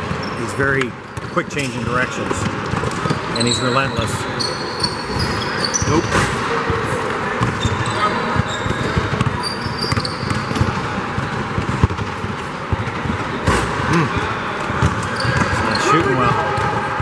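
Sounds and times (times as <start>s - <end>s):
sneaker squeaks: 0.0s - 17.0s
basketball dribbling thumps: 5.9s - 15.8s.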